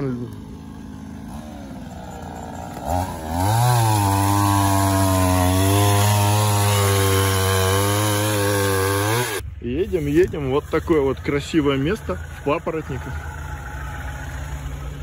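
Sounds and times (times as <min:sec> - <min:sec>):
chainsaw cutting tree trunk: 0:00.0 - 0:09.4.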